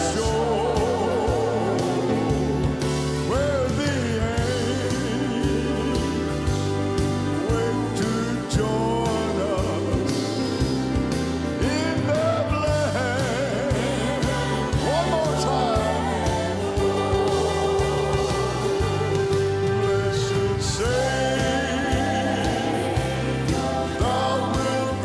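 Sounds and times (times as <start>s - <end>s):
singers holding wavering notes: 0.0s - 11.4s, 13.0s - 25.0s
country gospel band: 0.0s - 25.0s.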